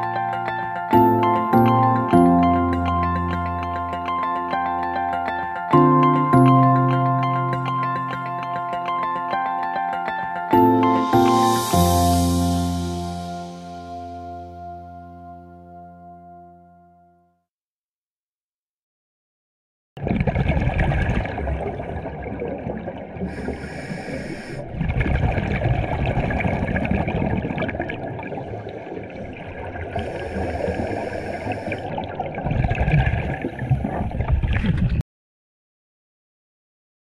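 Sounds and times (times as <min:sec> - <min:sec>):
rushing bubbling water: 0:20.0 - 0:35.0.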